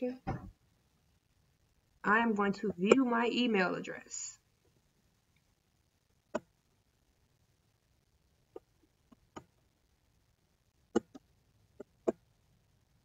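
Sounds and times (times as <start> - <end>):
computer mouse clicking: 10.9 - 12.2.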